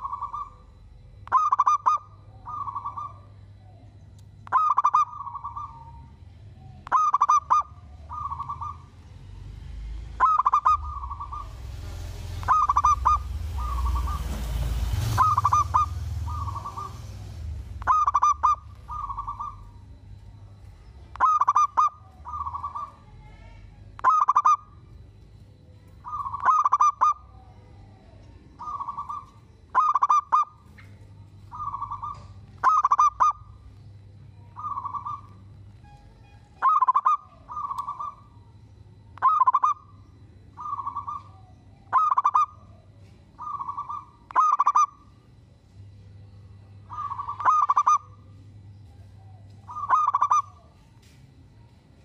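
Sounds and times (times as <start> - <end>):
dove cooing: 0.0 - 35.6, 36.5 - 38.5, 39.2 - 45.2, 46.8 - 50.8
hiss and low rumble: 0.0 - 52.0.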